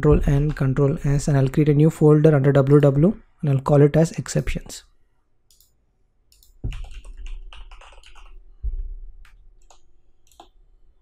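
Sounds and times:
keyboard typing: 5.5s - 8.5s, 9.2s - 10.6s.

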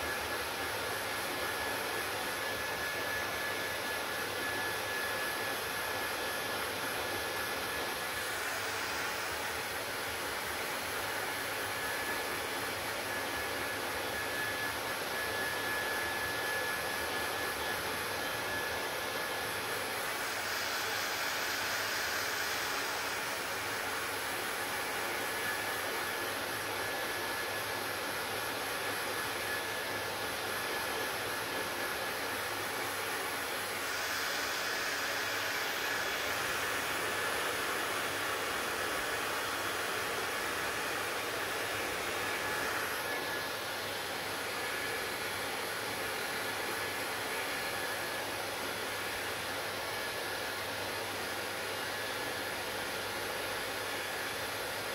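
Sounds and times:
hair dryer blowing air: 0.0s - 54.9s.

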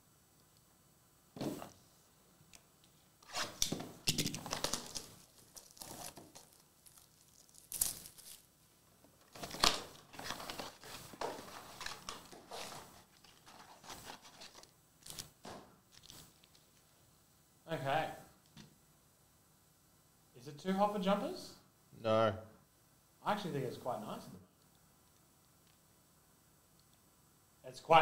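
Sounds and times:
plastic wrap crinkling and tearing: 4.2s - 8.5s, 9.3s - 16.6s
foil packs handled: 4.4s - 8.5s, 9.3s - 14.7s.

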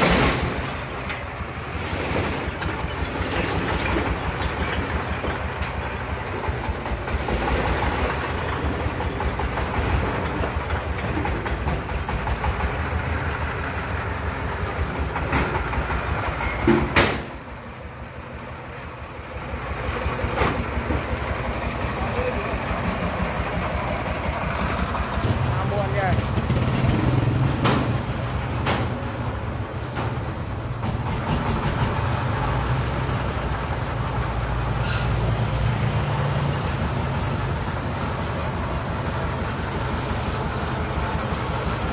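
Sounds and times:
small truck engine clattering: 0.0s - 41.9s
loud sharp knock: 16.6s - 17.4s.

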